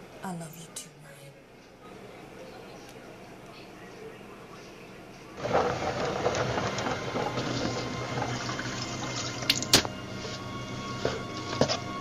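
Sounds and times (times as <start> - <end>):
mop sloshing in bucket: 5.4 - 9.5
soft background music: 5.4 - 12.0.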